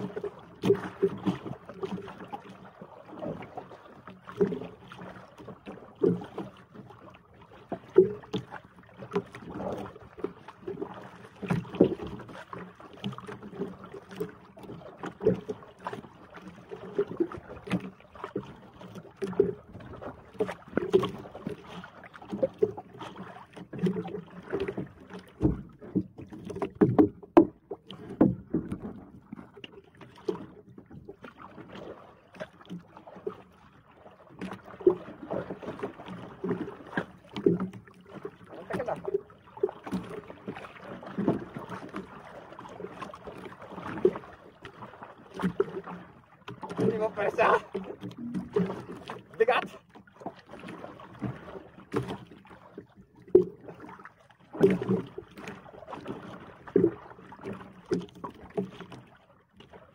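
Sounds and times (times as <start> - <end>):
water slapping against boat hull: 0.0 - 59.9
wind and water wash: 0.0 - 59.9
thuds against hull: 25.2 - 29.0.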